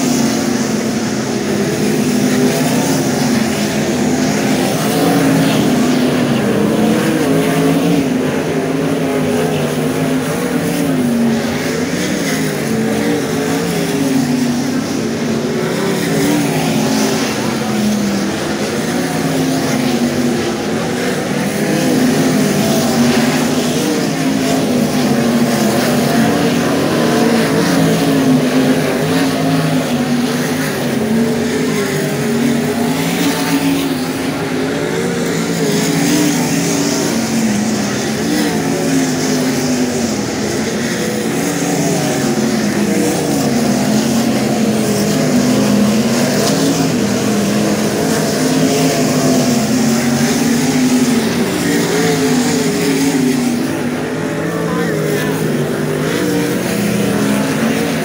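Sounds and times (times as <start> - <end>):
race car engines droning: 0.0 - 58.0.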